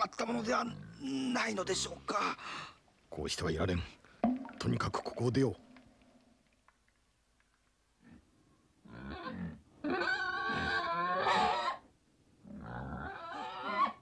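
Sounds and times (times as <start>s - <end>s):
wild boar squealing: 8.9s - 11.8s, 12.5s - 14.0s.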